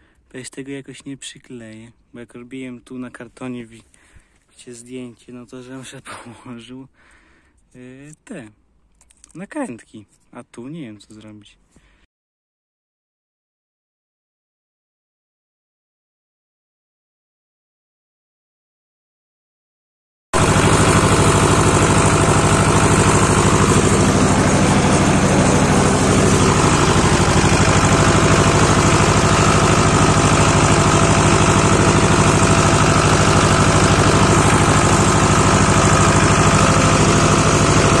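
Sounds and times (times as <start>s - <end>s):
tractor diesel engine running: 20.4s - 38.0s.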